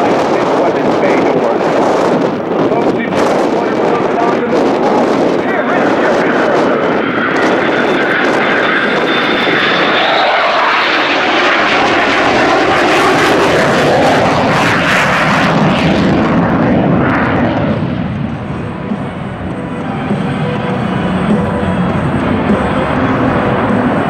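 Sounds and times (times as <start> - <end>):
high engine whine: 0.0 - 24.0
jet fighter flying past: 0.0 - 24.0.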